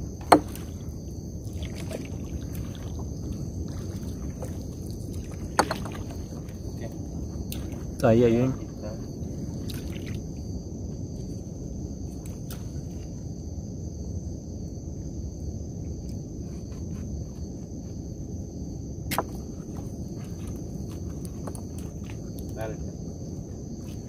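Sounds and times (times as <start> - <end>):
low rumbling background: 0.0 - 24.0
night insects chirring: 0.0 - 24.0
net knocking against wooden boat: 0.2 - 0.8, 5.5 - 6.4.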